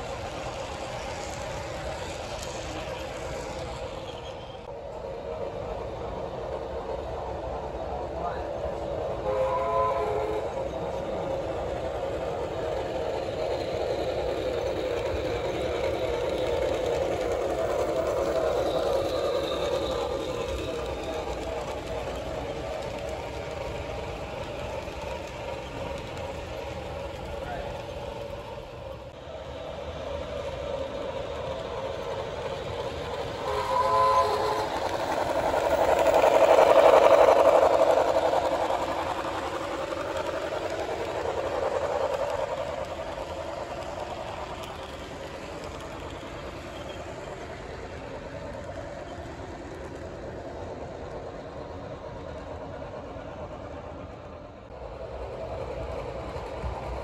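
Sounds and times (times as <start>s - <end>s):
model train wheels rolling: 0.0s - 57.0s
model locomotive horn tone: 9.1s - 10.8s, 33.3s - 35.2s.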